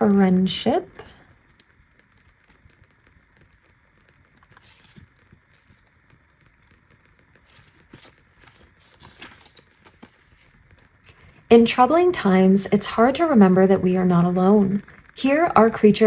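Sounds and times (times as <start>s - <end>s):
soft paper rustles: 2.0s - 11.4s.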